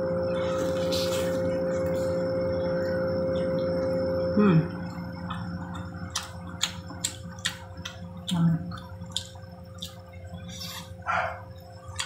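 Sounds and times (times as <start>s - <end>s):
ringing drone of held tones: 0.0s - 6.1s
faint chewing clicks: 4.8s - 10.4s.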